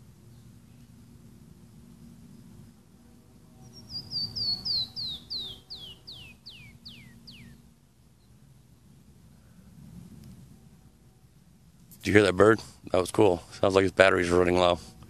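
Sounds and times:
canyon wren singing: 3.6s - 8.4s.

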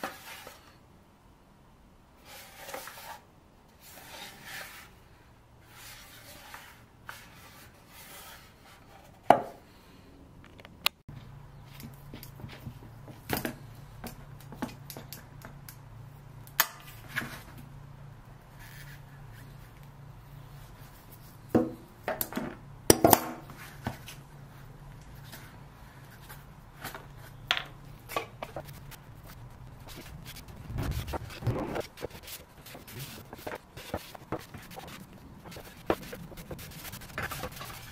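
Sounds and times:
steady low hum: 24.2s - 37.9s.

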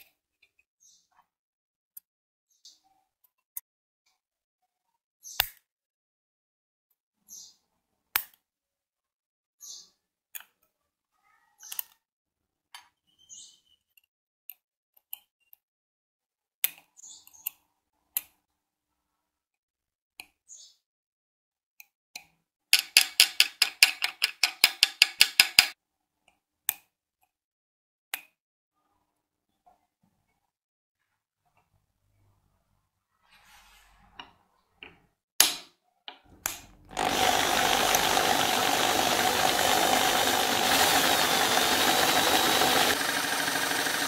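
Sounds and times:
tweezer tips clicking on metal: 22.2s - 25.8s.

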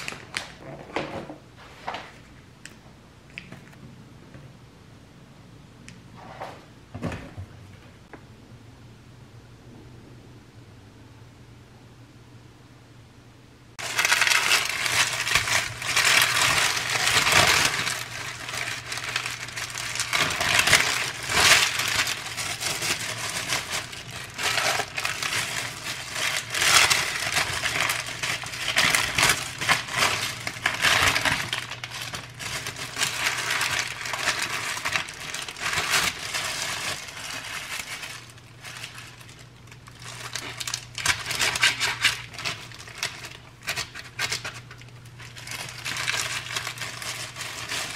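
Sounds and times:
wrapping paper crinkling: 0.0s - 0.6s, 13.8s - 47.9s.

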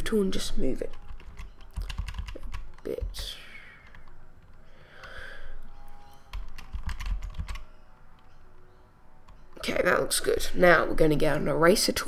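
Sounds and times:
keyboard keys clicking: 0.8s - 3.2s, 3.8s - 5.2s, 6.0s - 8.6s.

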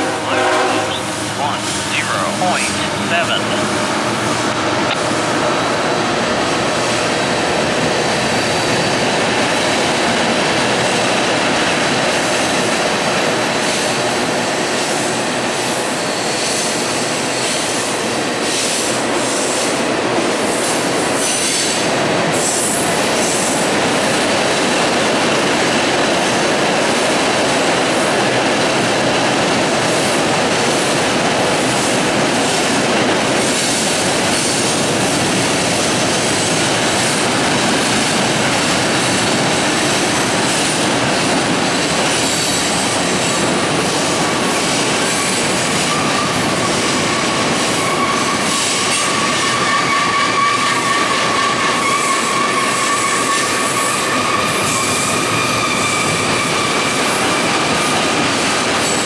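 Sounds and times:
train wheels rumbling on bridge: 3.6s - 59.0s
high wheel squeal: 45.2s - 57.6s.

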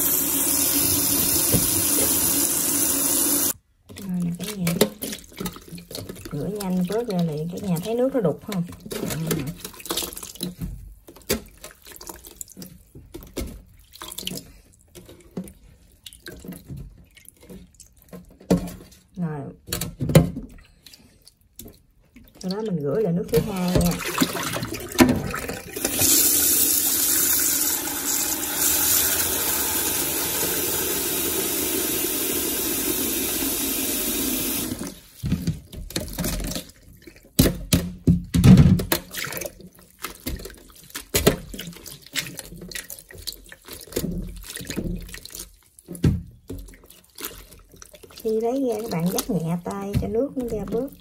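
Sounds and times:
tap running into a sink bowl: 0.0s - 3.5s
water sloshing and splashing: 0.0s - 31.8s, 34.4s - 51.0s.

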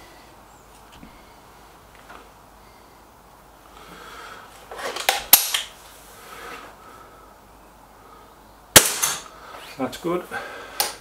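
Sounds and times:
sharp snap: 8.8s - 9.3s.

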